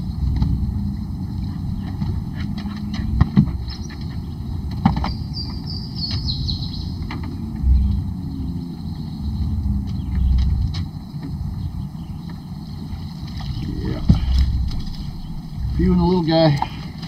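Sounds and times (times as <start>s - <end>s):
low steady rumble: 0.0s - 17.0s
bird chirping: 1.2s - 17.0s
sharp knocks and clicks: 1.8s - 6.3s.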